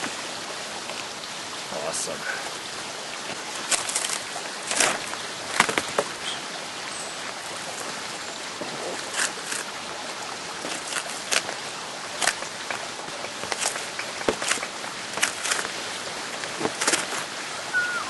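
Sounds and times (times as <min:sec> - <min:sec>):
sharp snaps and cracks: 0:03.6 - 0:06.1, 0:09.0 - 0:09.7, 0:10.6 - 0:15.8, 0:16.4 - 0:17.3.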